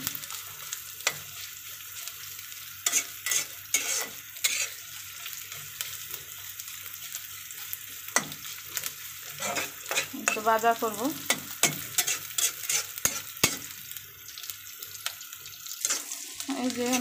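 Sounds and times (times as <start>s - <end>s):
onions sizzling in hot oil: 0.0s - 17.0s
spatula scraping a pan: 2.8s - 10.6s, 11.2s - 13.8s, 15.8s - 17.0s.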